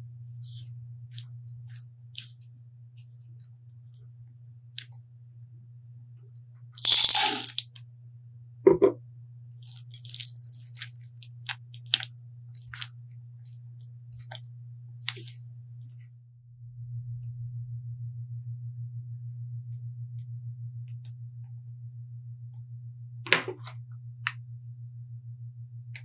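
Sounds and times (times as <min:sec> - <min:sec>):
steady low hum: 0:00.0 - 0:26.0
double knock: 0:08.7 - 0:09.0.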